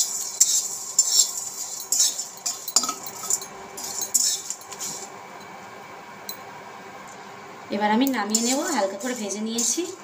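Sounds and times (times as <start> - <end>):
metal spatula scraping spices: 0.0 - 5.1, 8.3 - 10.0.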